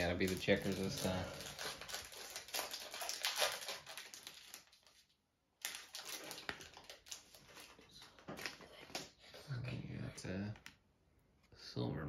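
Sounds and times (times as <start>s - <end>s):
foil wrapper crinkling: 0.0s - 9.1s.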